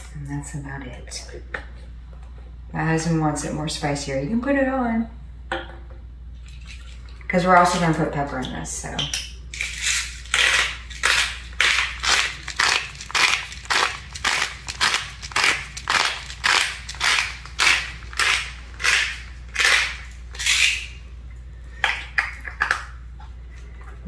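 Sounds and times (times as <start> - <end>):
pepper grinder crunching: 9.5 - 21.0.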